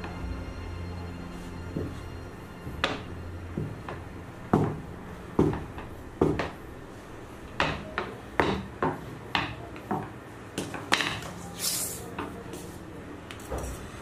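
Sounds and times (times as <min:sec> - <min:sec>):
taps on a hard worktop: 0:05.4 - 0:06.6.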